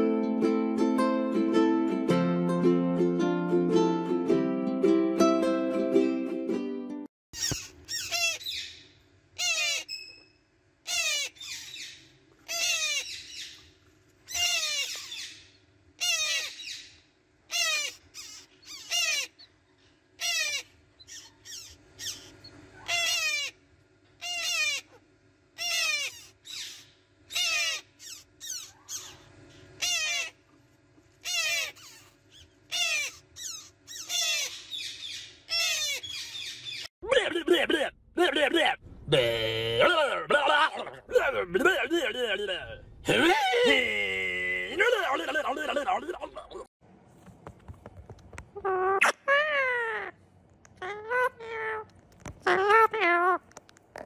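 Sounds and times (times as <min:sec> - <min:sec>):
parrot chicks begging calls: 0:07.4 - 0:10.2, 0:10.8 - 0:13.7, 0:14.3 - 0:30.4, 0:31.2 - 0:36.9, 0:48.7 - 0:50.2, 0:50.8 - 0:53.4
faint steady hum: 0:07.4 - 0:54.0.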